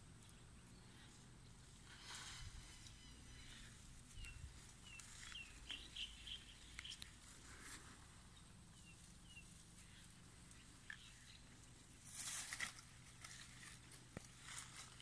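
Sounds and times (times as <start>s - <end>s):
quiet outdoor background noise: 0.0s - 15.0s.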